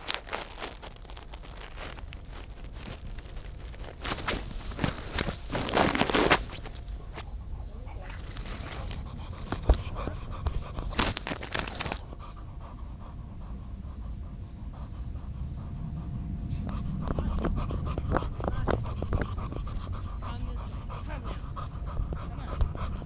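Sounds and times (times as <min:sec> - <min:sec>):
fur rustling against camera: 0:00.0 - 0:07.2, 0:10.9 - 0:12.0
dog panting: 0:00.0 - 0:23.0.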